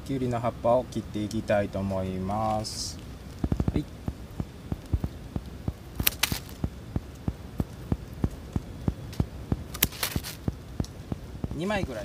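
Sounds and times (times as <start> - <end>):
soft steady ticking: 0.0 - 12.0
scissors snipping a stalk: 6.0 - 6.7, 8.9 - 10.9.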